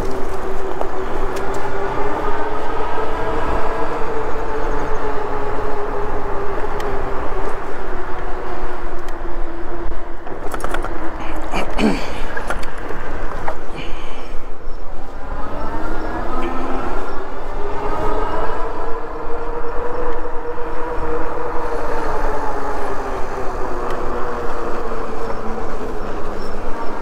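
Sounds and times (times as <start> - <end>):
electric bike motor hum: 0.0 - 11.4, 12.2 - 27.0.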